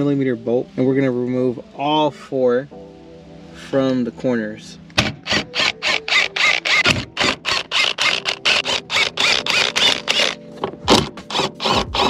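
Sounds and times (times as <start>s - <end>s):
ratcheting driver clicking: 5.0s - 12.0s.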